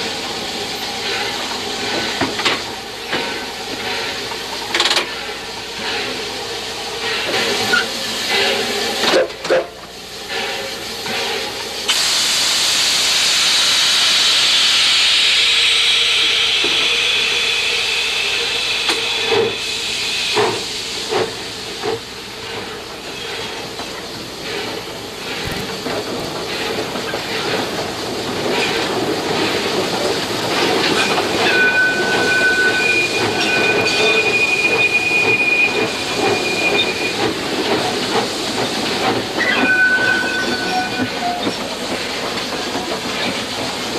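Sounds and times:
steam hissing: 0.0s - 43.9s
metallic clanks and knocks: 25.3s - 26.4s.

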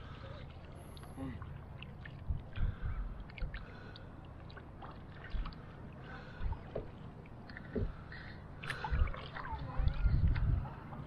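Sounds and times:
kayak paddle splashing water: 0.0s - 11.0s
water dripping off paddle: 0.6s - 10.5s.

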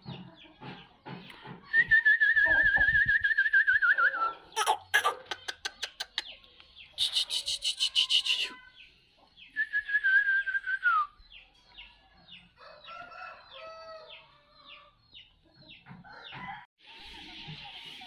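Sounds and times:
rooster crowing: 12.6s - 14.2s.

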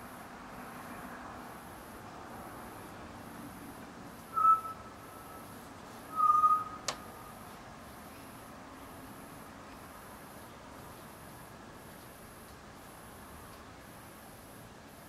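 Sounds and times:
outdoor hiss: 0.0s - 15.0s
whistled notes: 4.3s - 4.9s, 6.1s - 6.8s.

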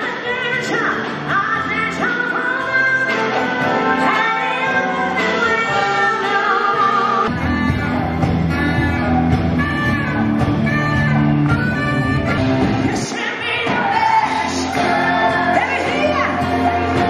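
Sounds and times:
woman singing: 0.0s - 9.0s, 9.6s - 17.0s
live rock band: 0.0s - 17.0s
saxophone playing phrases: 3.0s - 13.1s.

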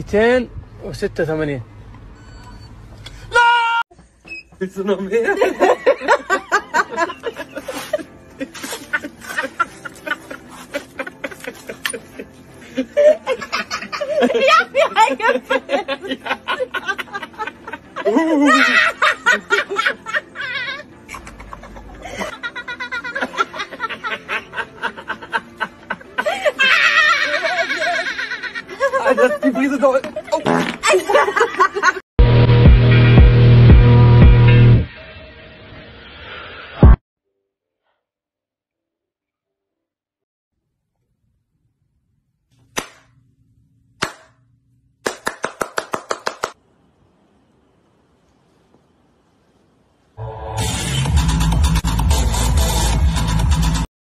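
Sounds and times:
adults laughing hard: 5.2s - 32.0s
hand claps: 42.8s - 43.1s, 44.0s - 44.4s, 45.0s - 46.6s.

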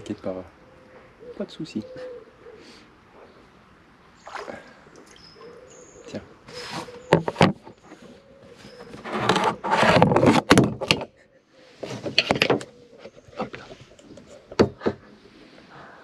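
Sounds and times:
camera handling rubbing and scraping: 6.5s - 11.0s, 11.8s - 14.6s.

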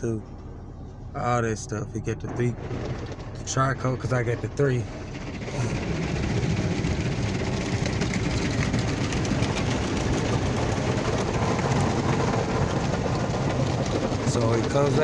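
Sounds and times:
low machinery hum: 0.0s - 15.0s
car wash spraying foam: 4.9s - 15.0s.

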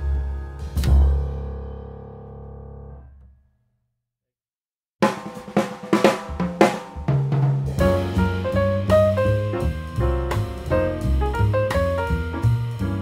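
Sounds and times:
music with drums: 5.0s - 13.0s.

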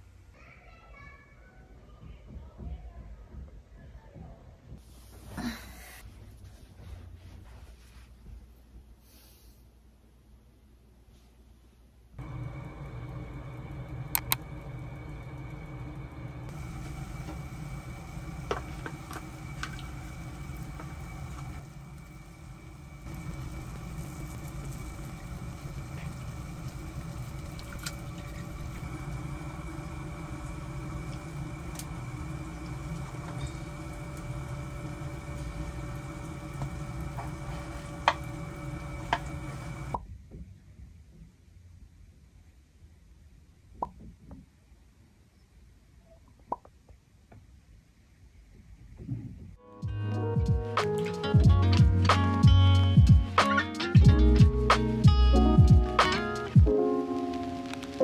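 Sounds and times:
faint high whine: 12.2s - 40.0s
soup simmering in a pot: 12.2s - 40.0s
stovetop humming: 12.2s - 40.0s, 54.0s - 58.0s.

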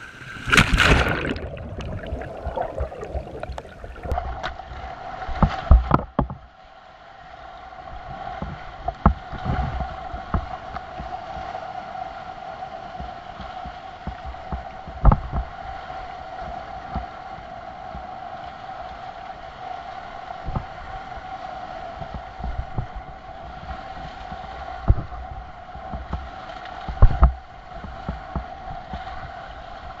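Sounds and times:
whitewater rushing and splashing: 0.0s - 4.2s
water thumping against camera: 0.3s - 4.5s, 24.8s - 25.2s.

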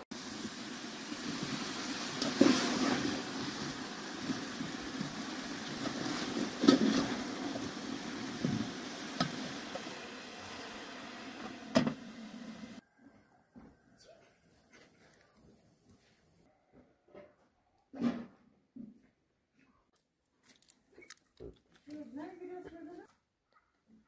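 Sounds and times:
pot boiling hard: 0.0s - 12.8s.

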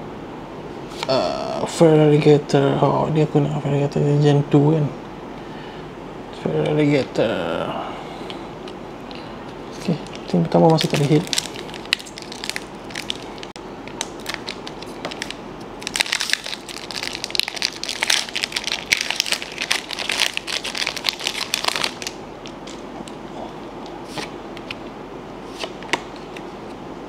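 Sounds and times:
foil wrapper crinkling: 9.8s - 22.8s.

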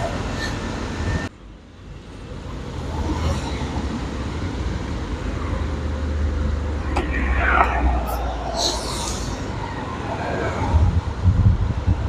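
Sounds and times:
road rumble: 0.0s - 12.0s
wind rush on microphone: 4.6s - 12.0s.

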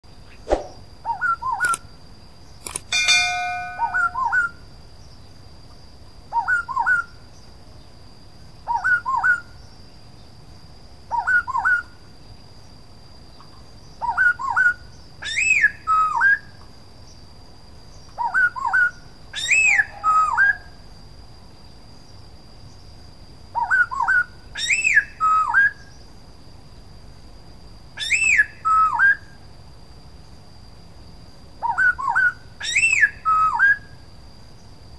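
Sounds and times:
bird whistled song phrases: 0.3s - 1.8s, 3.6s - 4.6s, 6.3s - 7.2s, 8.7s - 9.6s, 11.1s - 12.0s, 14.0s - 16.6s, 18.2s - 20.7s, 23.6s - 25.9s, 28.0s - 29.3s, 31.6s - 33.9s
steady tone: 3.0s - 4.3s.

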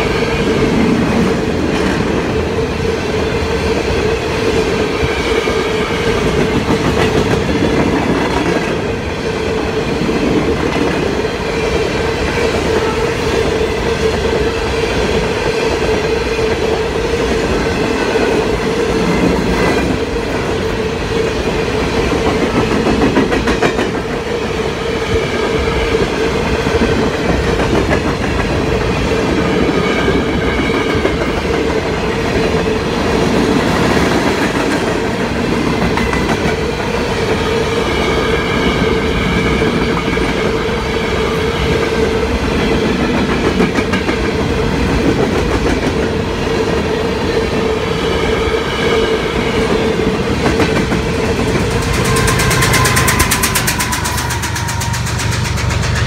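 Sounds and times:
freight train rumbling past: 0.0s - 56.0s
wheels clicking over rail joints: 50.4s - 56.0s
steady tone: 51.1s - 56.0s.

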